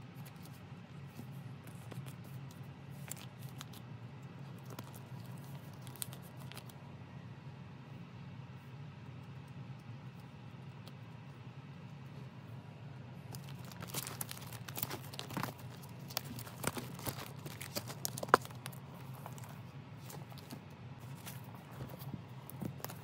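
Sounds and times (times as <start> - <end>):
plastic sleeves crinkling: 0.2 - 6.8, 13.3 - 23.0.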